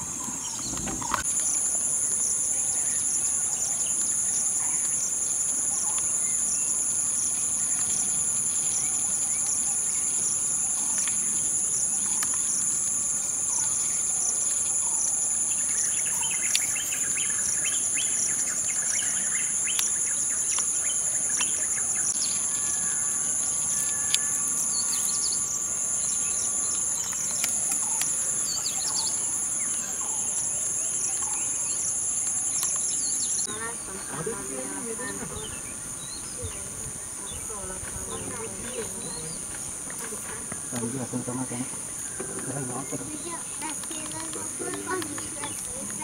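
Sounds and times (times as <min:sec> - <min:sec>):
bird chirps: 0:00.0 - 0:01.3
insects buzzing: 0:00.0 - 0:46.0.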